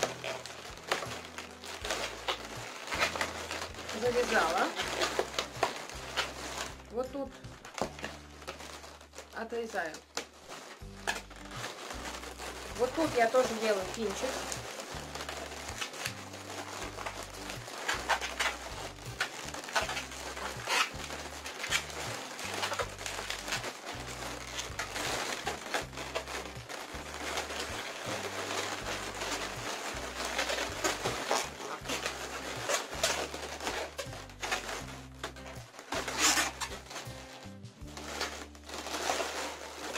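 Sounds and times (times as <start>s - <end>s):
balloons rubbing and crinkling: 0.0s - 39.9s
background music with bass line: 10.2s - 39.9s.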